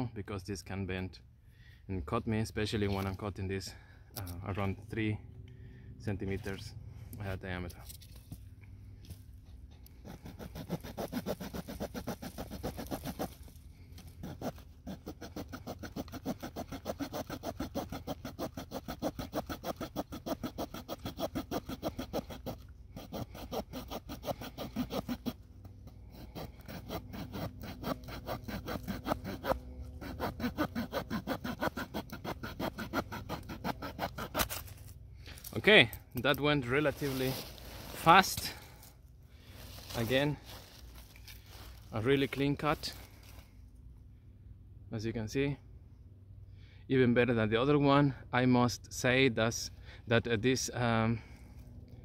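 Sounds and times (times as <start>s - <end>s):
small saw cutting branch: 9.7s - 35.6s.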